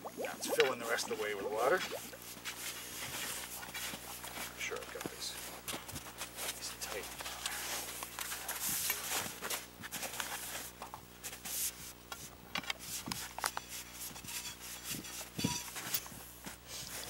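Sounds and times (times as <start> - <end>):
metal rod scraping: 14.1 - 16.0.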